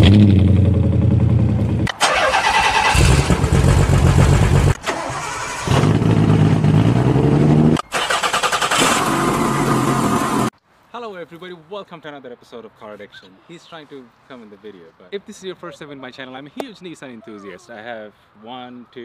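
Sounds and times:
car engines and exhausts running: 0.0s - 10.5s.

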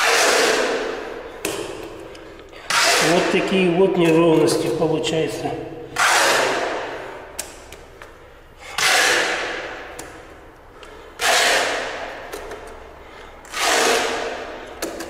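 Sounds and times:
putty knife scraping adhesive: 2.6s - 4.2s, 6.0s - 6.7s, 8.6s - 15.0s.

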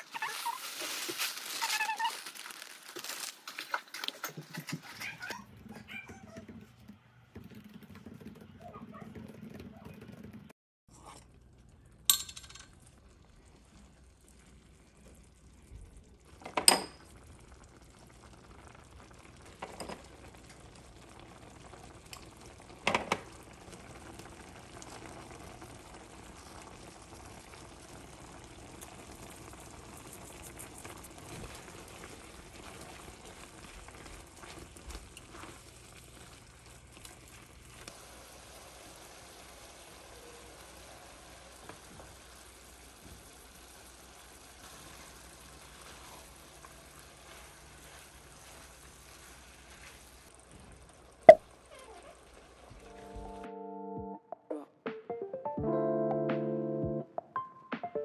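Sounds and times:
food sizzling in a pan: 0.0s - 3.7s, 12.8s - 53.4s.

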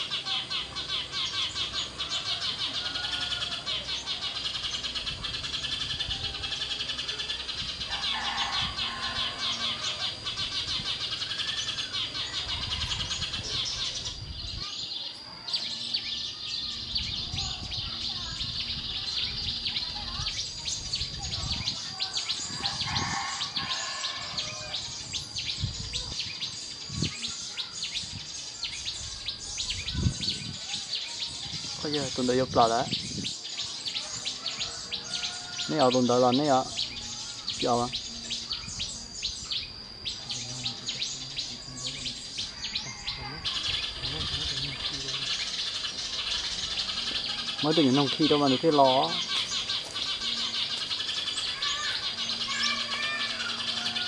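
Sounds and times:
small birds chirping: 0.0s - 54.0s
steady high-pitched shrill: 33.8s - 54.0s.

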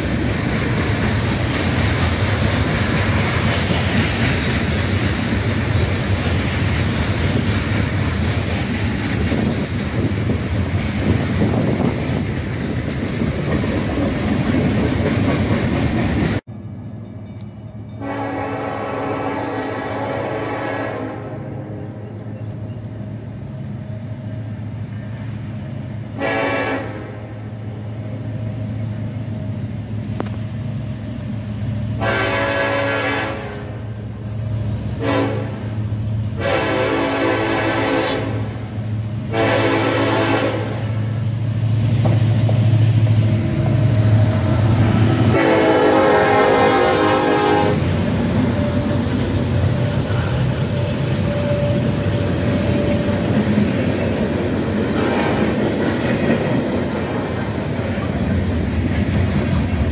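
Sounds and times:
locomotive engine rumble: 0.0s - 26.4s, 27.2s - 59.9s
locomotive air horn blasts: 18.0s - 22.0s, 26.2s - 27.4s, 32.0s - 33.8s, 35.0s - 38.7s, 39.3s - 41.0s, 45.3s - 53.3s.

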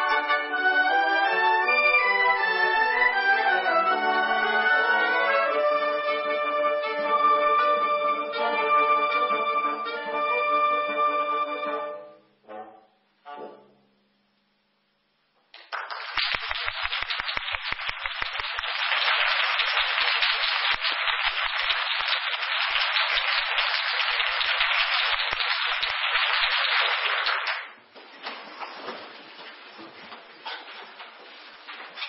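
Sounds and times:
audience applauding: 15.5s - 27.8s.

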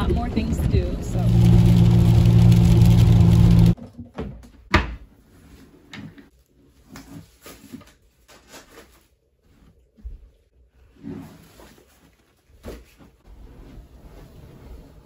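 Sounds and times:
car cabin road noise: 0.0s - 3.8s.

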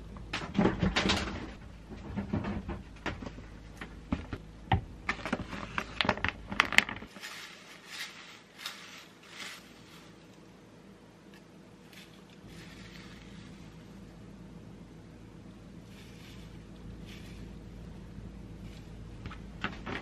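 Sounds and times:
plastic bag crinkling: 5.2s - 10.4s
soft rustling of flakes: 5.2s - 20.0s.

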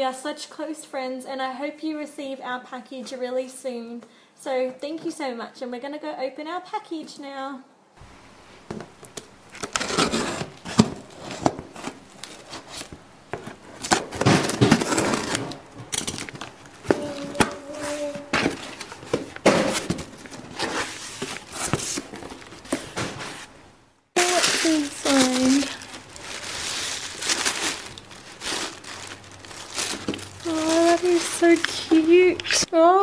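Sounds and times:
packing tape ripping: 9.5s - 12.9s, 13.7s - 17.8s, 24.2s - 32.7s
tissue paper crinkling: 24.2s - 32.7s.

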